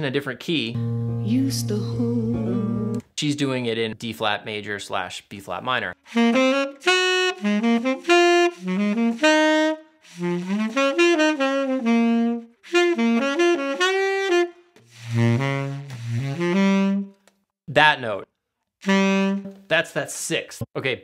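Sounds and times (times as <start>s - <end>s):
tenor saxophone melody: 6.0s - 17.3s, 18.8s - 19.7s.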